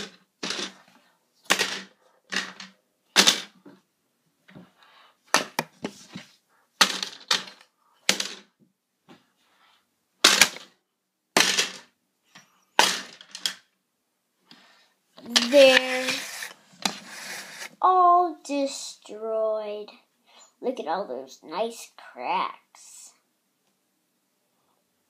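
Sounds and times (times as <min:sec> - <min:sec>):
plastic bricks rattling: 0:00.0 - 0:00.9, 0:01.5 - 0:03.6, 0:06.8 - 0:08.5.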